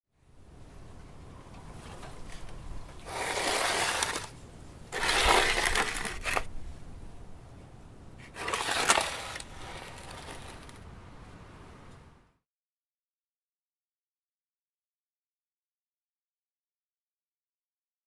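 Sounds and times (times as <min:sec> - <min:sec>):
gritty media rattling in bowls: 0:02.3 - 0:06.5, 0:08.2 - 0:10.8
bowls scraping on concrete: 0:02.9 - 0:06.5, 0:08.2 - 0:10.8.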